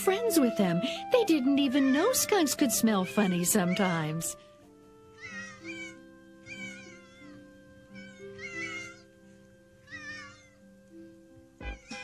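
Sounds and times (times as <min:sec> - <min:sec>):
soft background music: 0:00.0 - 0:12.0
kittens mewing: 0:03.1 - 0:04.3, 0:05.2 - 0:09.1, 0:09.8 - 0:10.6.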